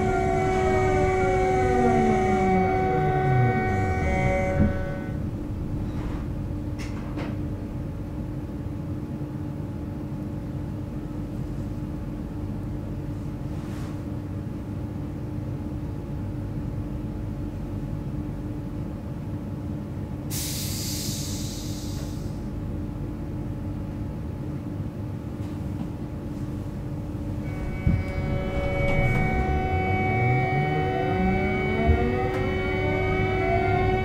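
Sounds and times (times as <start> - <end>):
constant tone: 0.0 - 6.6, 27.4 - 34.0
train equipment humming: 0.0 - 13.5, 20.3 - 34.0
loud hiss: 20.3 - 22.4.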